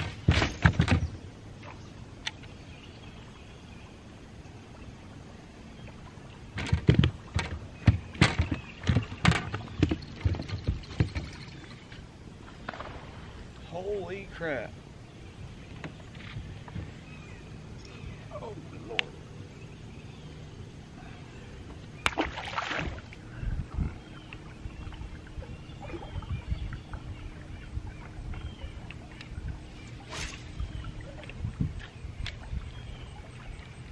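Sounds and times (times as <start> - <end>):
knocks and thumps on a boat: 0.0 - 1.2, 6.5 - 11.8, 15.7 - 17.2
faint steady hum: 0.0 - 33.9.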